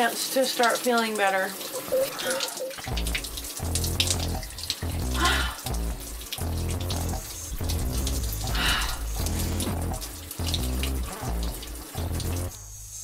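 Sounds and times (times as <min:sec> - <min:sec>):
shower spray splashing: 0:00.0 - 0:13.0
music with deep held notes: 0:02.7 - 0:13.0.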